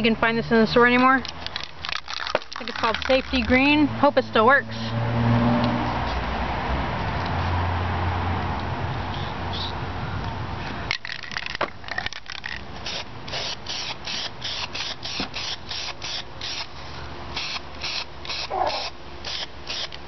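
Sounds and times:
spray can hissing bursts: 0:12.8 - 0:16.6, 0:17.4 - 0:19.9.

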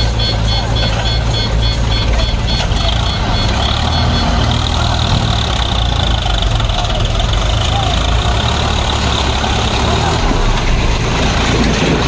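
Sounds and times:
fast high beeping: 0:00.0 - 0:06.4
diesel engines droning: 0:00.0 - 0:12.0.

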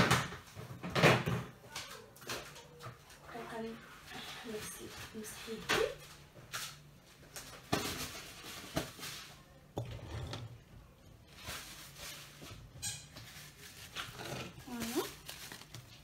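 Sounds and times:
rustling: 0:11.2 - 0:16.0.

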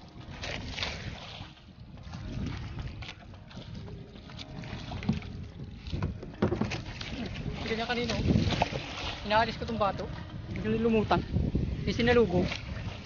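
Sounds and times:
water sloshing against boat: 0:00.0 - 0:13.0
wind buffeting microphone: 0:00.0 - 0:13.0.

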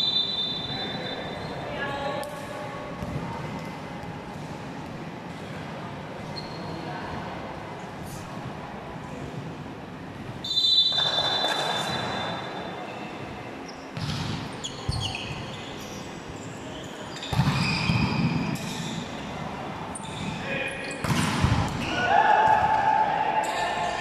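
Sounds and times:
referee's whistle: 0:00.0 - 0:01.5, 0:10.4 - 0:12.4
shoes squeaking on court floor: 0:06.3 - 0:06.8, 0:10.4 - 0:19.0, 0:19.9 - 0:21.2.

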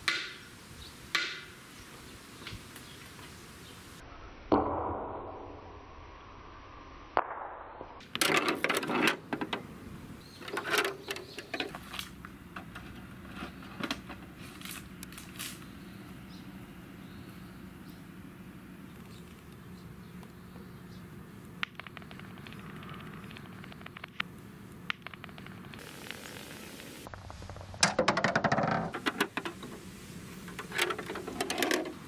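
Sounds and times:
toy ball bouncing on pavement: 0:21.6 - 0:25.8.

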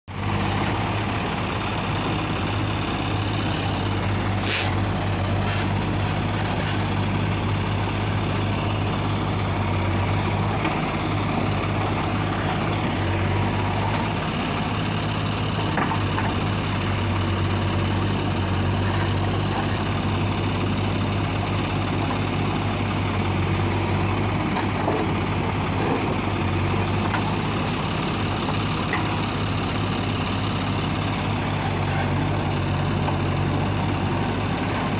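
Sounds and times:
diesel engine running: 0:00.1 - 0:34.9
backhoe digging soil: 0:00.2 - 0:07.0, 0:21.8 - 0:34.9.

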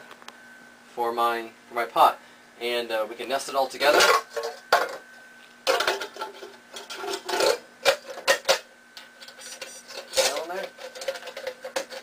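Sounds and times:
tin cans knocking and scraping: 0:03.8 - 0:05.0, 0:05.7 - 0:08.6, 0:09.2 - 0:12.0.

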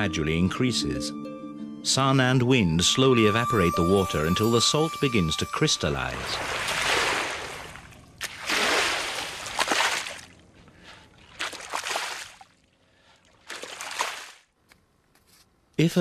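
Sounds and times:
rake swishing through water: 0:06.4 - 0:10.4.

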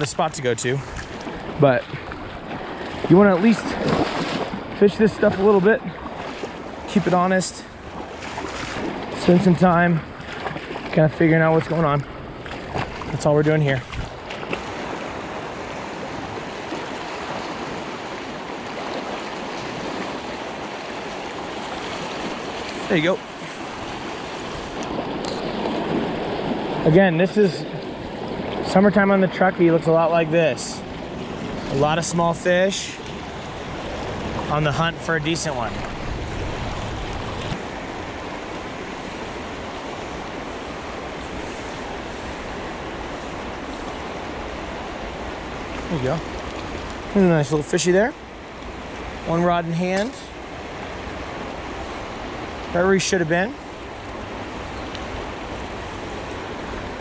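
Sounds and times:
river rushing over stones: 0:12.6 - 0:57.0.

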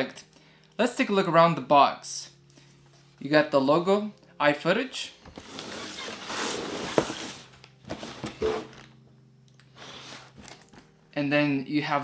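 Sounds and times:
cardboard box scraping on table: 0:05.3 - 0:08.9, 0:09.8 - 0:10.6.

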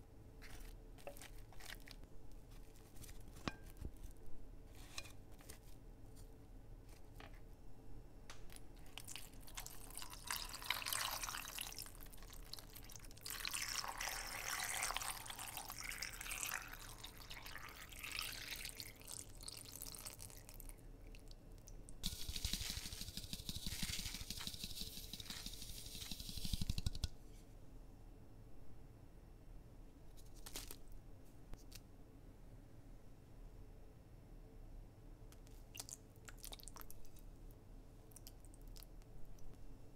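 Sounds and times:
water pouring into a pot: 0:08.9 - 0:20.6.

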